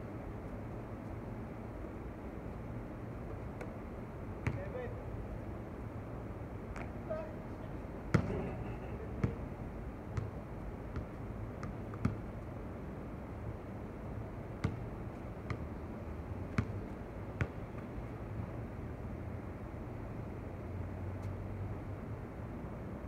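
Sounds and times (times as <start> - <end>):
low background hum: 0.0 - 23.0
basketball bouncing on hard court: 4.4 - 4.8, 8.1 - 9.5, 10.1 - 12.3, 14.6 - 15.7, 16.5 - 17.9.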